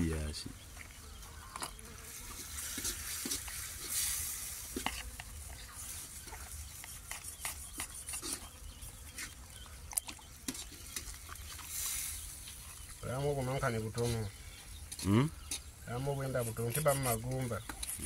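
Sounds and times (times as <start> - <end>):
wet squelches of fish gutting: 9.2 - 13.0.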